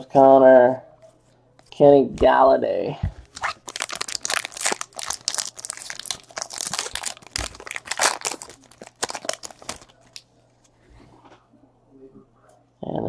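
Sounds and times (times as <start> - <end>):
plastic wrapper crinkling: 3.2 - 10.3.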